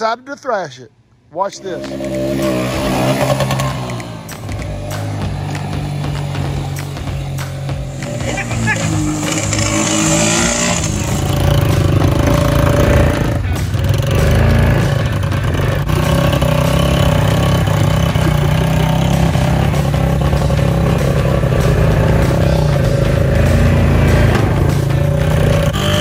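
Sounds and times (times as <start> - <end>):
atv engines droning: 1.4 - 26.0.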